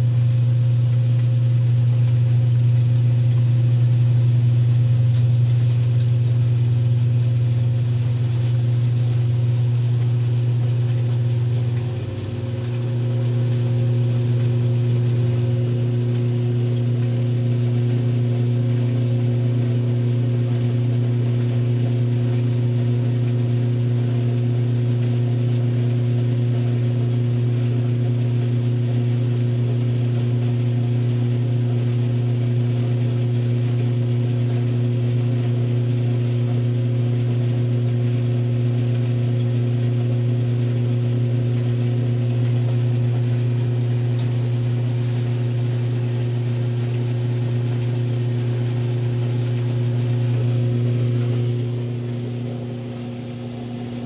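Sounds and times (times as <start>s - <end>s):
washing machine motor humming: 0.0s - 54.0s.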